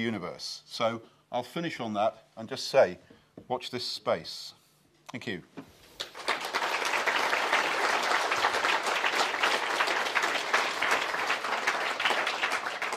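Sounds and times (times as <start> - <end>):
audience applauding: 6.0 - 12.9.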